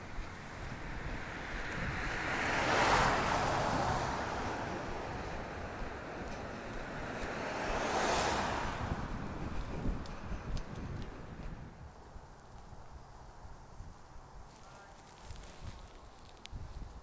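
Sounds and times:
cars passing: 0.0s - 11.8s.

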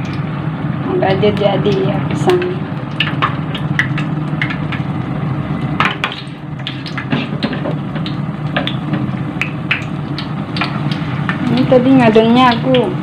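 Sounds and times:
batter frying in hot oil: 0.0s - 13.0s.

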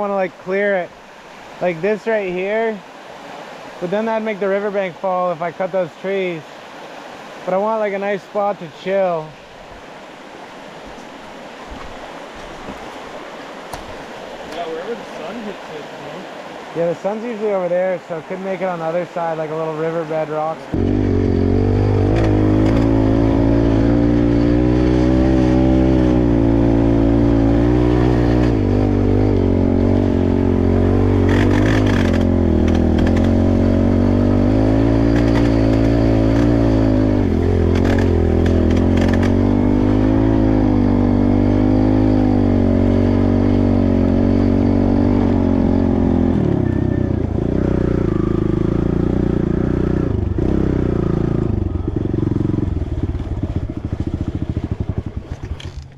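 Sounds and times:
dirt bike engine running: 20.8s - 55.9s.

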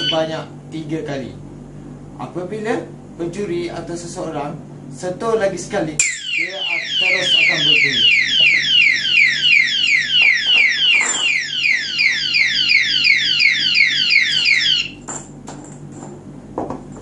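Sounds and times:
alarm siren falling sweeps: 6.0s - 15.0s.

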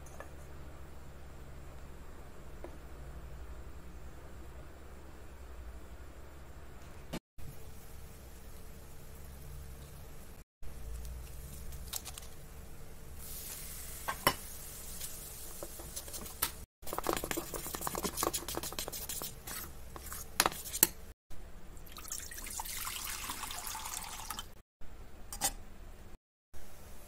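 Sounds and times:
spoon scraping batter in steel pot: 15.8s - 21.0s
water running into pot: 21.8s - 24.6s.

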